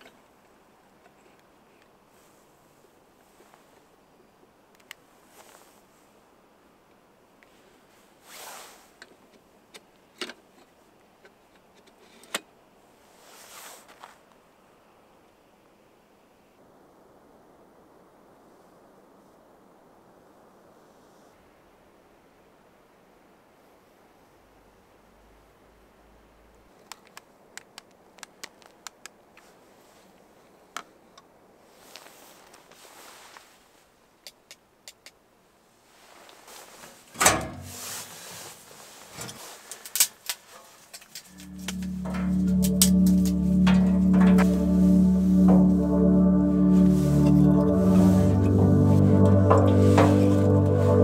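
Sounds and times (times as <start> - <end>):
soft rustling: 0.9 - 4.0, 5.0 - 6.2, 7.4 - 9.5, 13.0 - 14.4, 28.3 - 34.2, 35.6 - 42.2
camping lantern clicks and taps: 26.8 - 29.2, 34.2 - 35.2.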